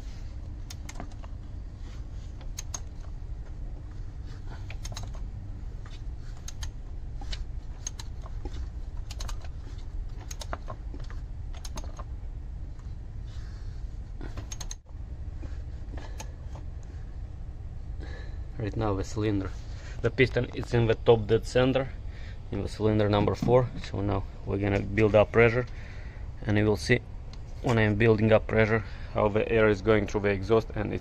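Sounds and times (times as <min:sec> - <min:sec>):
engine turned by hand clicking: 0:02.4 - 0:03.1, 0:04.6 - 0:05.3, 0:06.3 - 0:12.1, 0:14.3 - 0:14.9.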